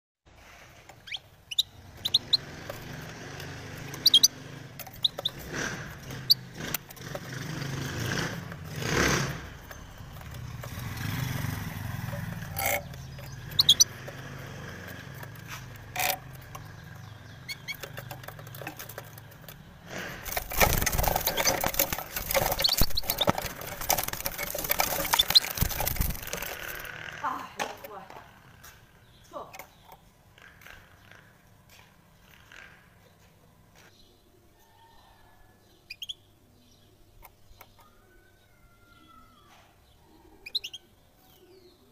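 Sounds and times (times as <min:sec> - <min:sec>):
street traffic hum: 0:00.3 - 0:34.6
finch chirping: 0:00.4 - 0:27.1, 0:35.7 - 0:38.0, 0:40.4 - 0:41.8
wings flapping: 0:01.8 - 0:27.7.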